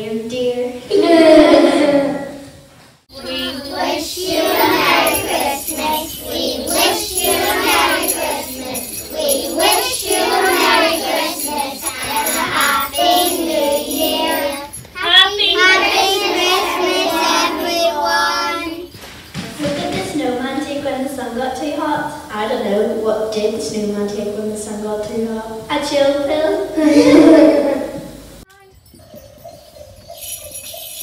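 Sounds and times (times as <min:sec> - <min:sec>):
children singing: 0:00.9 - 0:02.4, 0:03.1 - 0:18.9.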